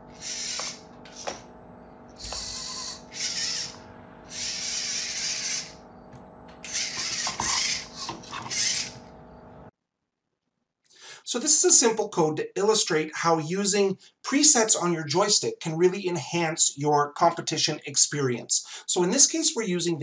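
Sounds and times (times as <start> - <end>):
robot motors whirring: 0.1 - 1.5, 2.2 - 5.8, 6.6 - 9.1.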